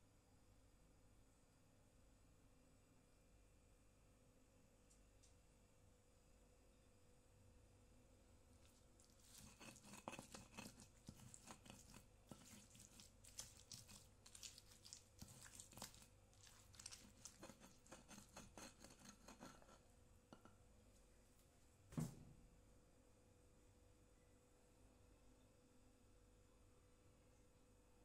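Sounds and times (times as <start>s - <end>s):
wet crunching: 8.6s - 19.6s
stone pestle grinding in mortar: 8.7s - 19.8s.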